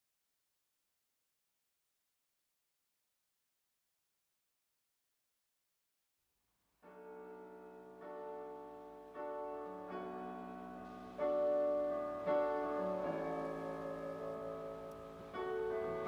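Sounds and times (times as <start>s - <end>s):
piano slow sustained chords: 6.9s - 16.0s.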